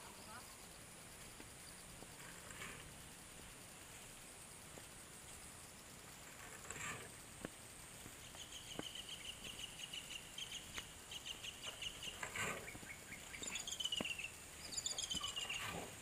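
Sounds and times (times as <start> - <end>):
bird calling in trills: 8.2 - 15.8.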